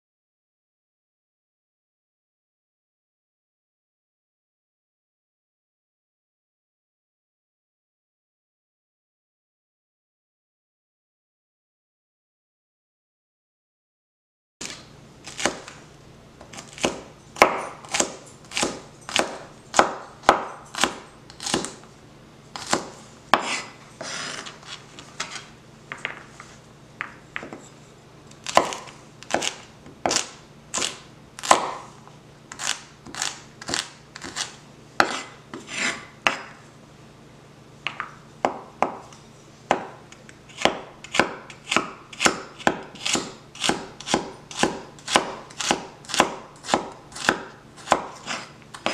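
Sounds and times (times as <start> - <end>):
cleaver chopping on wooden board: 16.5 - 21.8, 22.6 - 24.2, 28.4 - 31.9, 33.1 - 36.5, 37.9 - 39.0, 39.7 - 48.9.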